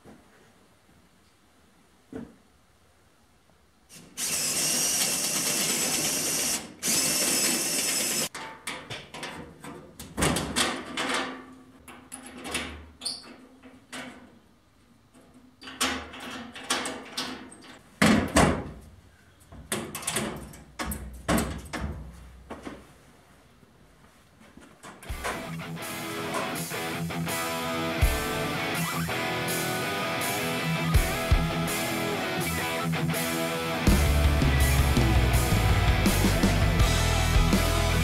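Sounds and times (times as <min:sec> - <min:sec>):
cordless drill running: 0:04.0 - 0:08.3.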